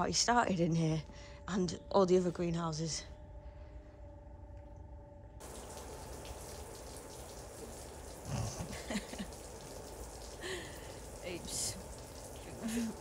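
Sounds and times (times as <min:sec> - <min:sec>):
low hum: 0:00.0 - 0:13.0
rain pattering on roof: 0:05.4 - 0:13.0.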